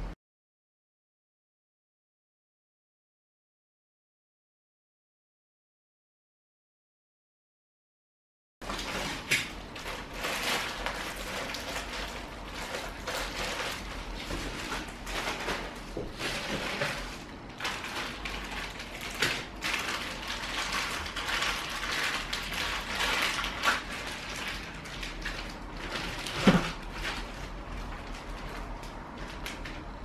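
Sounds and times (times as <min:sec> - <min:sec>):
plastic packaging crinkling: 0:08.6 - 0:30.0.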